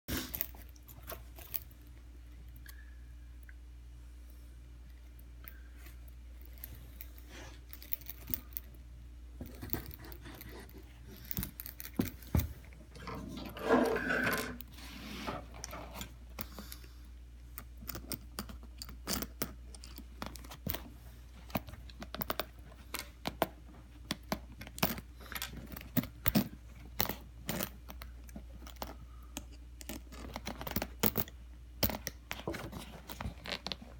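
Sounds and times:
leather handling noise: 29.9 - 33.9.

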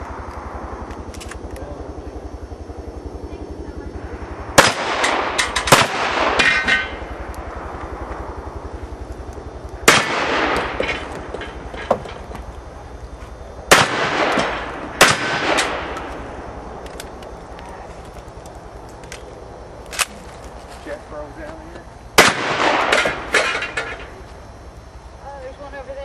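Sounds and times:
loud shotgun shots: 4.6 - 7.0, 9.8 - 11.5, 13.7 - 16.2, 22.2 - 23.7
sharp metallic clanks: 4.7 - 7.1, 9.9 - 12.4, 22.2 - 24.2.

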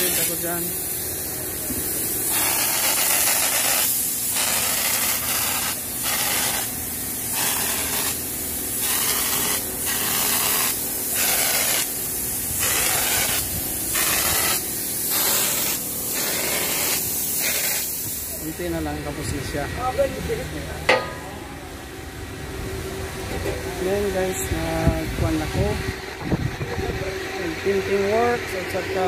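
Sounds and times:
spray gun hissing: 0.0 - 20.4.

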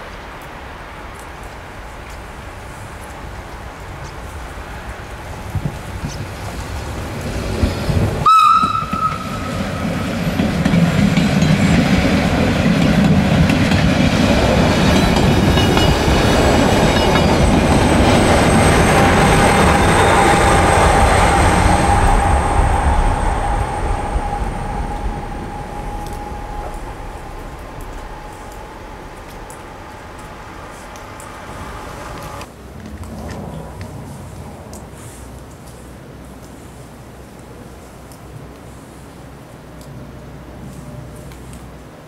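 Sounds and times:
electric train passing: 0.0 - 36.2
train horn blast: 8.2 - 10.0
thin steady whine: 17.0 - 32.5.

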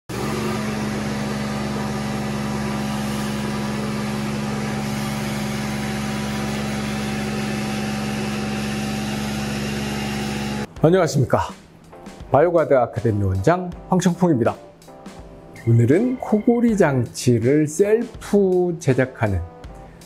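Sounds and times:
motor hum: 0.1 - 10.7.

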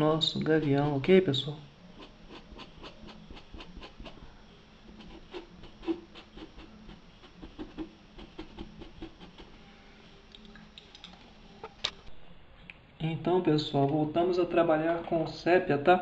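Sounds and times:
paintbrush scratching on fabric: 1.9 - 4.2, 4.9 - 9.6.

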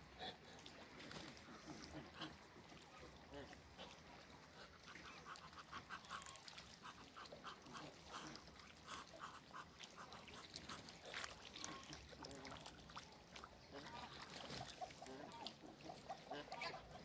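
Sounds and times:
ducks calling faintly: 0.1 - 17.0.

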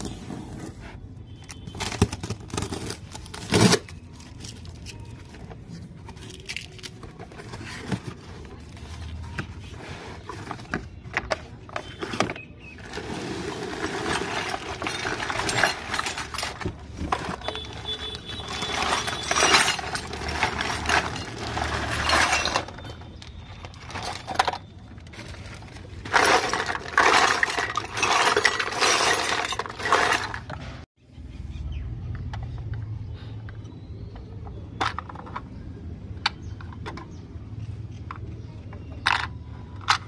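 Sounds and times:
toy pieces clattering onto floor: 12.2 - 30.6.

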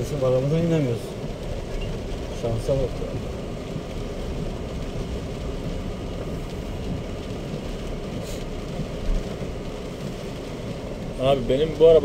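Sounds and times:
road and tyre noise: 0.0 - 12.0
brief hiss: 8.2 - 8.5.

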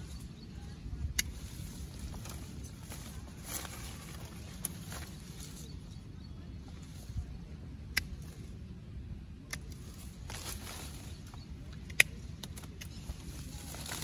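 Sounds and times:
leafy branches rustling: 0.0 - 14.0
branches snapping: 1.1 - 5.7, 9.4 - 14.0.

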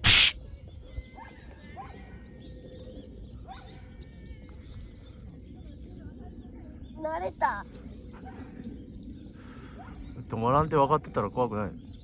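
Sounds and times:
brief loud burst of noise: 0.0 - 0.4
bird chirps and calls: 0.0 - 10.3.

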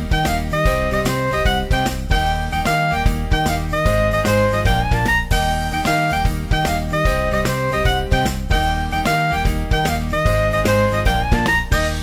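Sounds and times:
instrumental music with steady beat: 0.0 - 12.0.

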